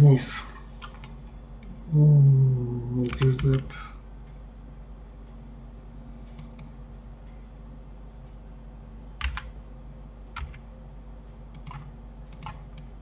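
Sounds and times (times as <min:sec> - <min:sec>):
faint electrical hum: 0:00.0 - 0:13.0
keyboard and mouse clicking: 0:09.2 - 0:09.6, 0:10.4 - 0:10.7, 0:11.5 - 0:12.9.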